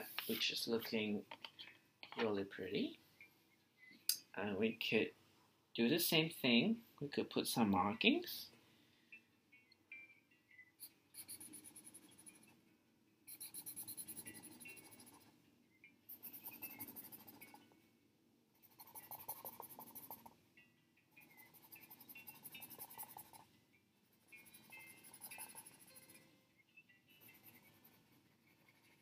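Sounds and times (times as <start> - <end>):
marker scratching on paper: 11.1 - 12.6, 13.3 - 15.3, 16.1 - 17.6, 18.6 - 20.3, 21.2 - 23.4, 24.2 - 26.3, 27.2 - 29.0.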